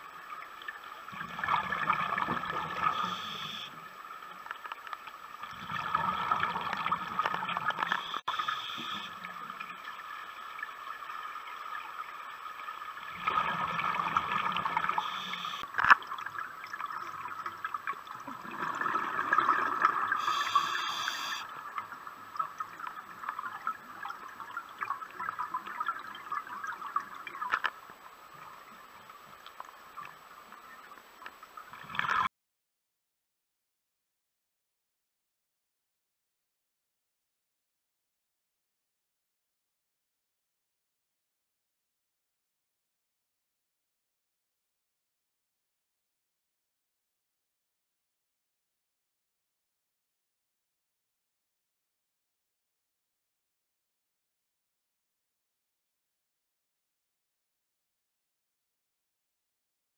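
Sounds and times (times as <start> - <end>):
quiet underwater hiss: 0.0 - 32.3
underwater bubbles gurgling: 0.0 - 32.3.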